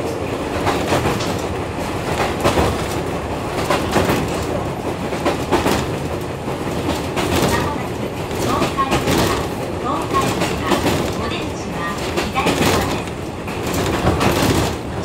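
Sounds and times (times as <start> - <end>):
train rumble: 0.0 - 15.0
wheels clacking over rail joints: 0.0 - 15.0.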